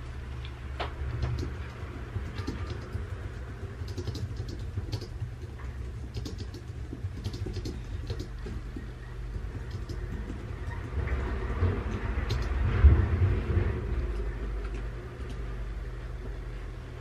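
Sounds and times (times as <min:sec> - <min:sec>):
steady low rumble: 0:00.0 - 0:17.0
paper scratching and ticking: 0:01.1 - 0:12.6.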